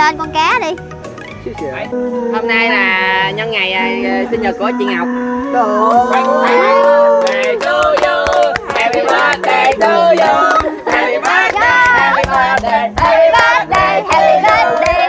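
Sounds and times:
group of people singing: 1.9 - 15.0
hands clapping: 5.9 - 15.0.

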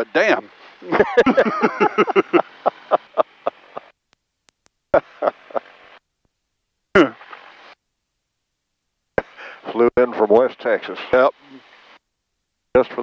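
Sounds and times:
laughter over headset intercom: 0.9 - 3.9, 4.9 - 5.8.

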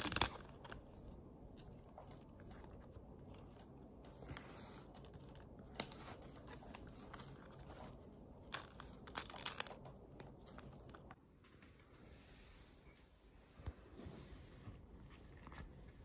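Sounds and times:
crisp snaps: 0.0 - 1.0, 8.4 - 11.2
plant bracts crinkling and tearing: 0.0 - 11.2.

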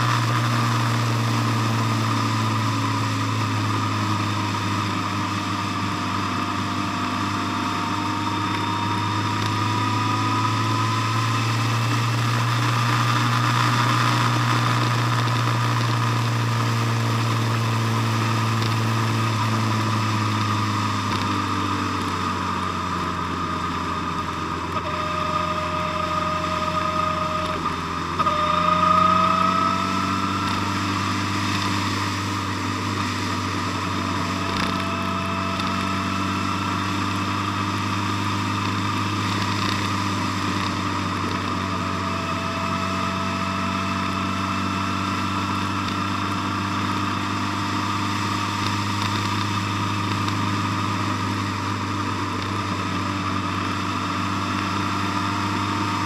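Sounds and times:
motorcycle engine running: 0.0 - 56.0
road noise: 0.0 - 56.0.

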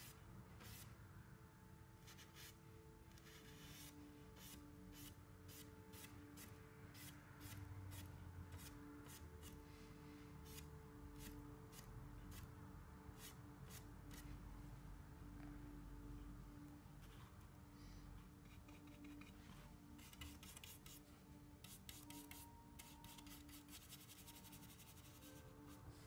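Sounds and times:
paintbrush strokes on canvas: 18.6 - 26.0.

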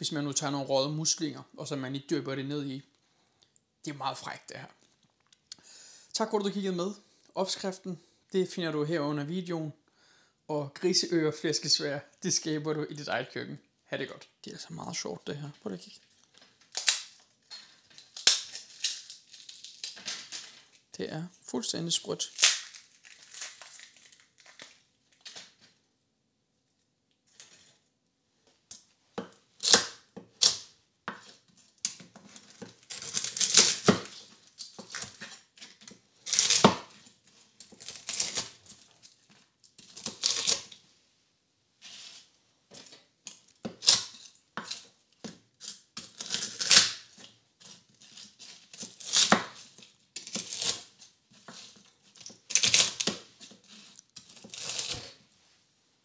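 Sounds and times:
crunching fried crackling: 22.2 - 24.8, 32.8 - 35.5, 37.6 - 40.7.

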